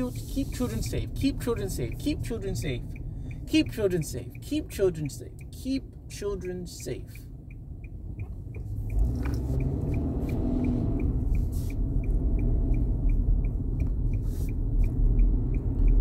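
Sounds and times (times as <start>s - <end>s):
car road and engine rumble: 0.0s - 16.0s
faint even ticking: 0.0s - 16.0s.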